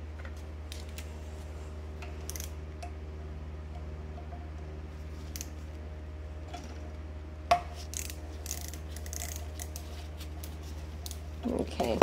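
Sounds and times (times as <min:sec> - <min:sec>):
steady low hum: 0:00.0 - 0:12.0
screwdriver clicking and scraping metal: 0:07.8 - 0:11.2.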